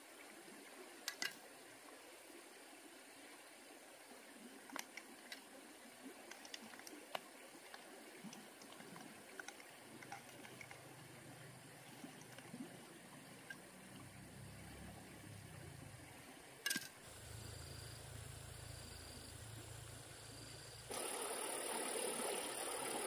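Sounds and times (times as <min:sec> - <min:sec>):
faint running stream: 0:00.0 - 0:23.0
small sharp ticks: 0:04.7 - 0:05.5, 0:06.2 - 0:10.8
low steady hum: 0:17.0 - 0:23.0.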